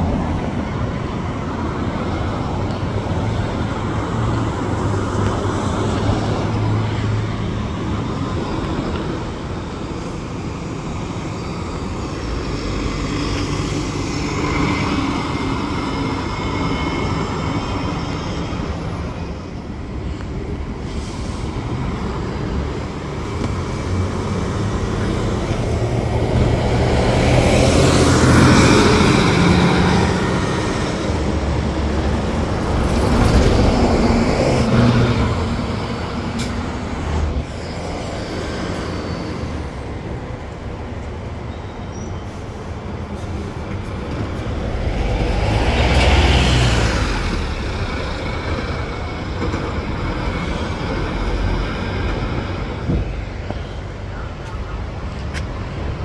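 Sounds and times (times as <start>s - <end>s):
buses and street traffic: 0.0s - 56.0s
vehicle passing: 43.6s - 49.2s.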